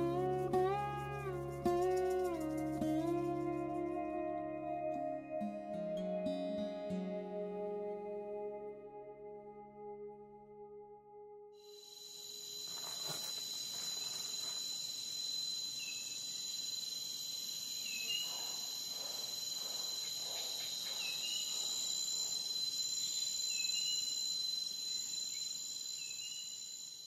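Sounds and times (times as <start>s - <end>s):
insects trilling: 0.0s - 4.4s, 11.6s - 27.0s.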